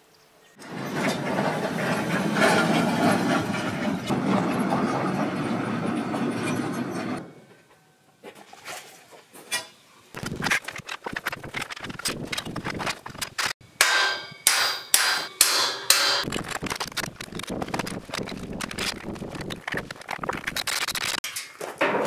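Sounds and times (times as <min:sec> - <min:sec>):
hammer blows on steel: 0:13.8 - 0:16.2.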